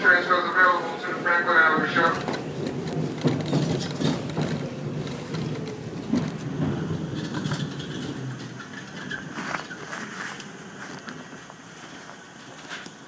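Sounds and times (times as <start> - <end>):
subway train wheels rumbling: 0.0 - 13.0
wheel clacks: 1.8 - 11.1.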